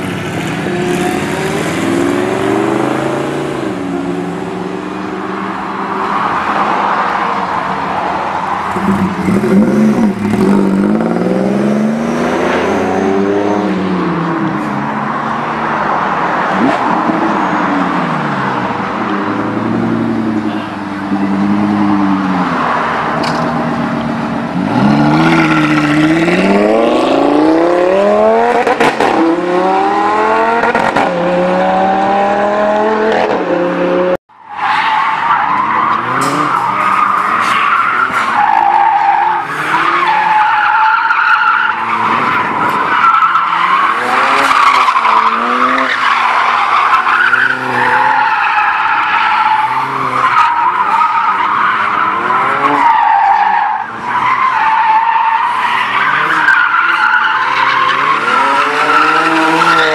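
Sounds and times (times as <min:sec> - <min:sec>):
drift car engines revving: 0:00.0 - 0:59.9
car engine revving: 0:08.6 - 0:14.3, 0:41.6 - 0:59.9.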